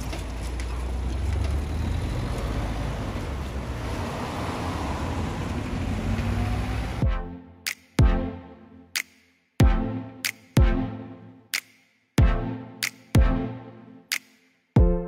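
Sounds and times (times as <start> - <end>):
tyre noise on wet tarmac: 0.0 - 7.0
vehicles driving past: 0.0 - 7.1.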